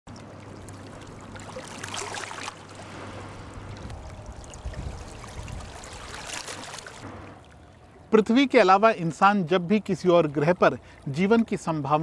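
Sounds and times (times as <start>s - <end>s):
river water lapping against rocks: 0.1s - 8.5s
loud water splash: 0.4s - 8.0s.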